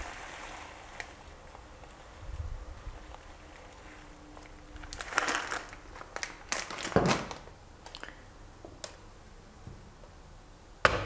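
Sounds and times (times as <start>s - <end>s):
plastic packet crinkling: 3.0s - 8.1s.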